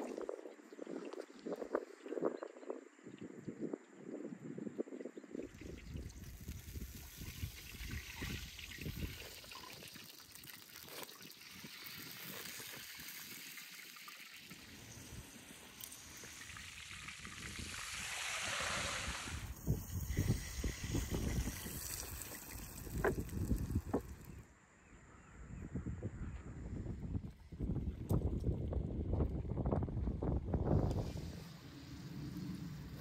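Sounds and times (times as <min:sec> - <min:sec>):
hot oil sizzling and crackling: 0:05.5 - 0:24.4.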